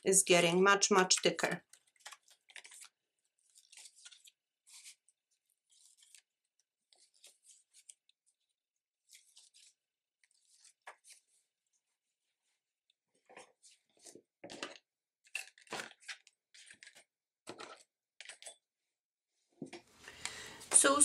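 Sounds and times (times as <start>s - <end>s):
paper pages rustling: 1.7s - 11.5s, 13.2s - 18.6s.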